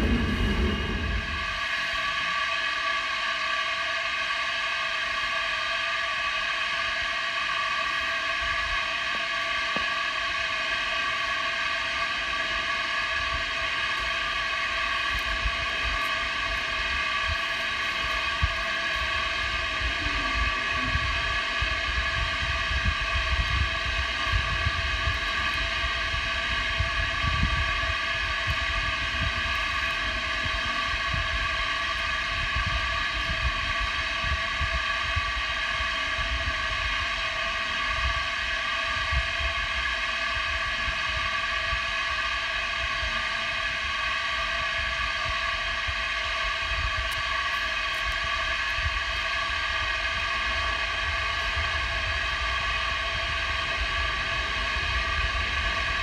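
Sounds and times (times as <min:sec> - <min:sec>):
wind buffeting microphone: 0:00.0 - 0:02.4, 0:13.2 - 0:42.1, 0:44.8 - 0:56.0
subway train electrical hum: 0:00.0 - 0:56.0.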